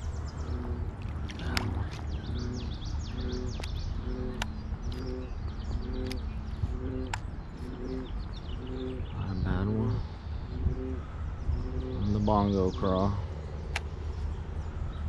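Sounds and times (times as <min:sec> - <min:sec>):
low pitched call: 0:00.0 - 0:13.4
birds chirping: 0:00.0 - 0:15.0
sharp clicks: 0:00.6 - 0:02.2, 0:03.3 - 0:05.2, 0:05.9 - 0:06.3, 0:06.9 - 0:07.2, 0:13.7 - 0:14.0.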